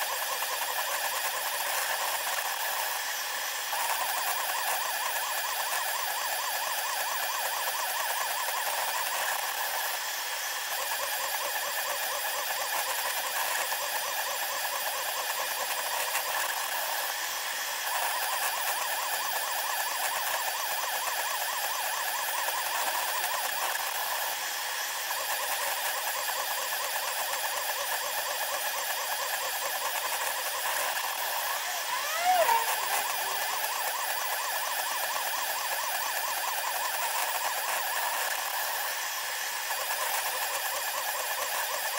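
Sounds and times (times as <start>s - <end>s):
printer mechanical chatter: 25.0s - 41.9s
brief squeal: 31.4s - 33.6s.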